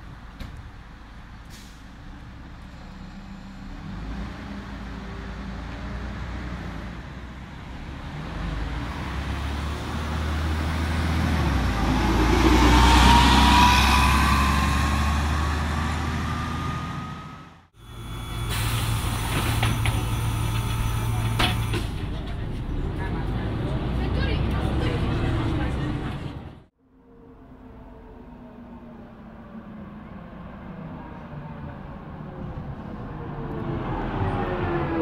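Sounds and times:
bus engine rumble: 0.0 - 26.8
rising whine: 11.5 - 21.8.

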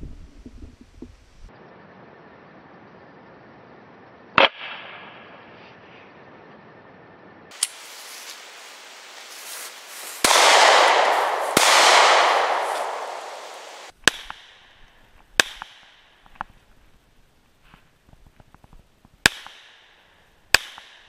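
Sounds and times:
loud rushing hiss: 7.5 - 13.9
pistol gunshots: 10.2 - 14.5.

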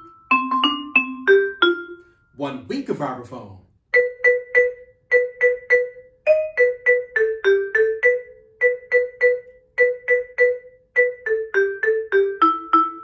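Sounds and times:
vibraphone melody: 0.0 - 2.8, 3.9 - 13.0.

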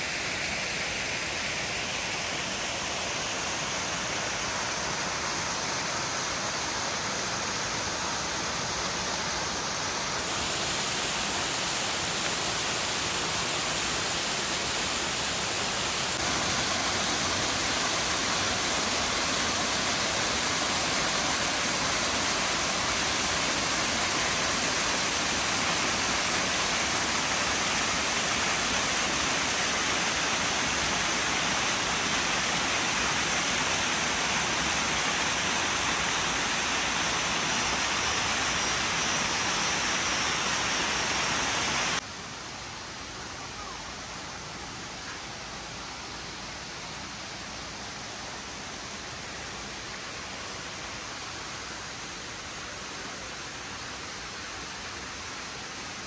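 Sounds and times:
waterfall rushing: 0.0 - 42.0.

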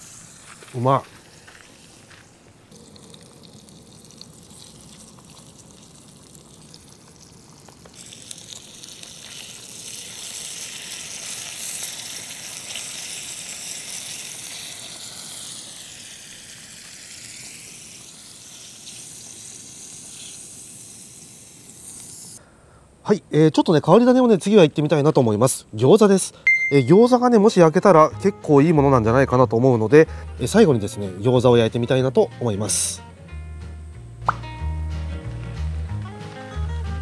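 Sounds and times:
meat sizzling in a frying pan: 0.0 - 2.2, 2.8 - 22.4.

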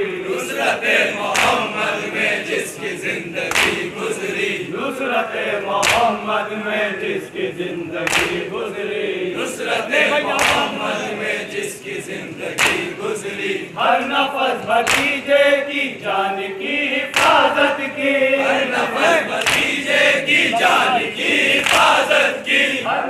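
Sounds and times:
men chanting in unison: 0.0 - 23.0
chest-beating slaps: 1.3 - 1.7, 3.5 - 3.9, 5.8 - 6.2, 8.0 - 8.5, 10.3 - 10.8, 12.5 - 13.0, 14.8 - 15.2, 17.1 - 17.4, 19.4 - 19.8.

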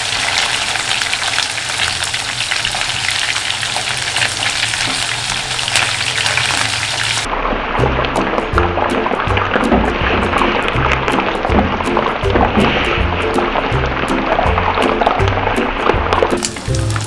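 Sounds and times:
meat sizzling in hot oil: 0.0 - 7.3, 10.2 - 17.0
music: 7.7 - 17.0.

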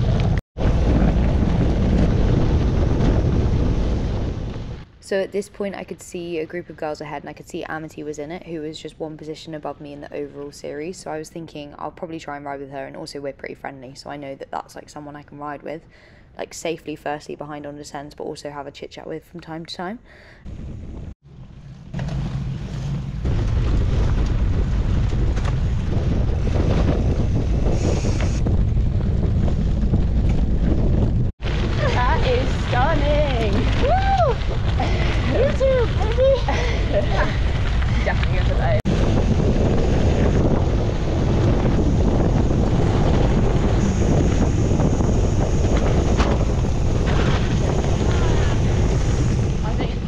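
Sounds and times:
bike tyres on dirt track: 0.0 - 5.0, 20.5 - 50.0
wind buffeting microphone: 0.0 - 15.2, 20.3 - 50.0.

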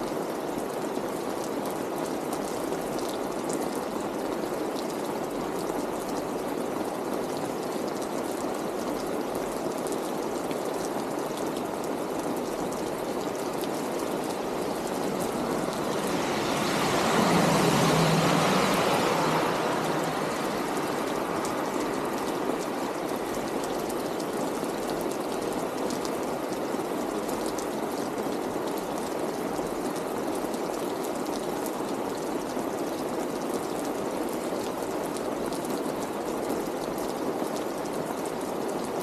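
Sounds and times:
steady rain on street: 0.0 - 39.0
water running and dripping: 2.2 - 32.6
car tyres hissing on wet road: 13.0 - 26.8.

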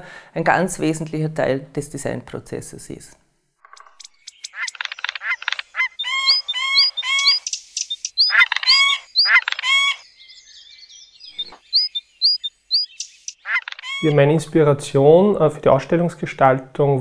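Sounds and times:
rapid chirping animal calls: 3.7 - 14.3.

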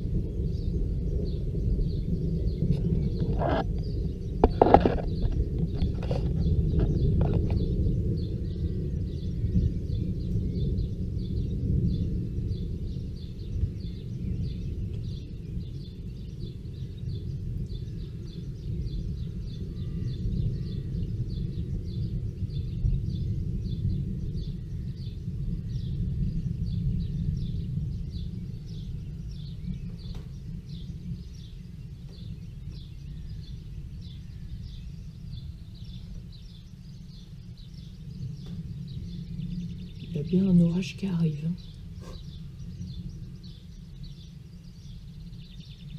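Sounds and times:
low wavering rumble: 0.0 - 45.9
bird chirping: 0.4 - 45.9.

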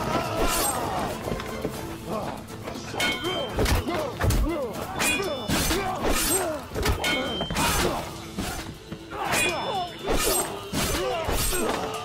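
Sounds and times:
sword blades clashing: 3.0 - 12.0.

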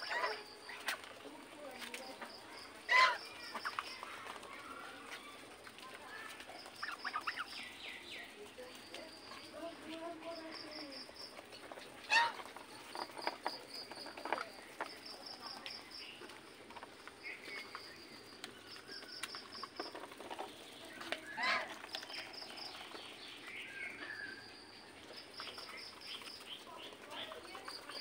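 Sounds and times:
bills pecking at grain: 0.0 - 28.0
geese honking: 2.9 - 3.7, 12.0 - 12.5, 21.3 - 21.9.

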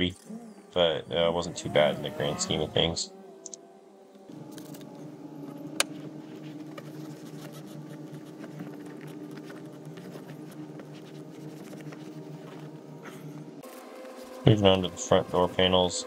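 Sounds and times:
steady machine hum: 0.0 - 16.0
towel rubbing a seat: 6.0 - 15.5.

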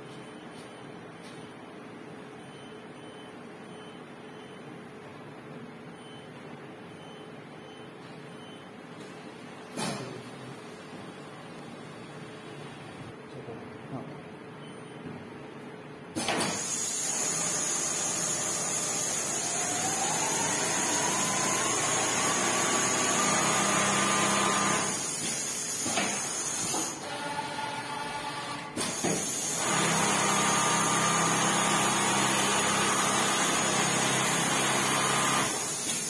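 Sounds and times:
sewing machine whine: 16.4 - 36.0.

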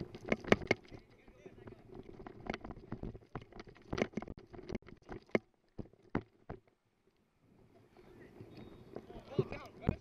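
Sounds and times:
gear jostling against camera: 0.0 - 6.7.

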